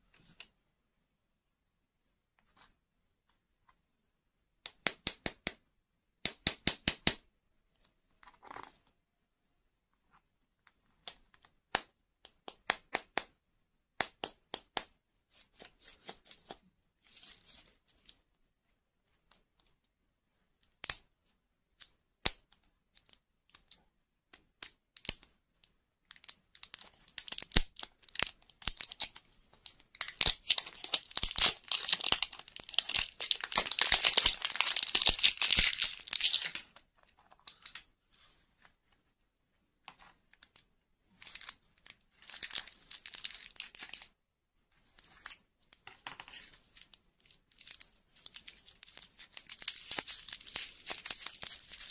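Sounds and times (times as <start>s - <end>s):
plastic wrapper crinkling: 26.2s - 37.8s, 40.2s - 44.1s, 46.2s - 51.9s.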